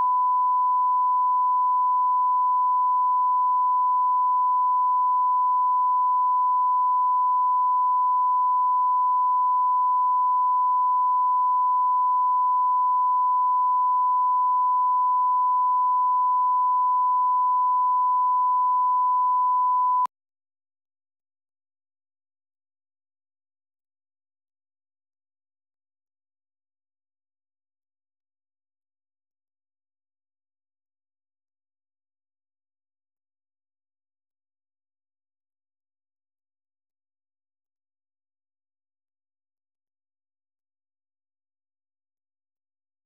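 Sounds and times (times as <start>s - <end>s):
pure test tone beep: 0.0s - 20.1s.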